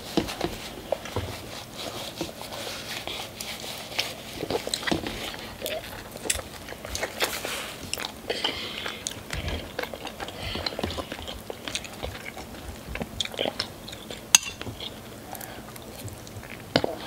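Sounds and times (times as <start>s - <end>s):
eating sounds: 0.2s - 17.0s.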